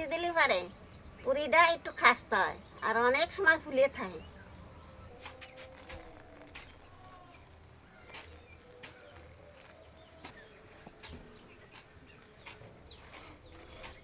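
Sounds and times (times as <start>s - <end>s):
sharp clicks: 5.2s - 6.8s, 11.0s - 14.0s.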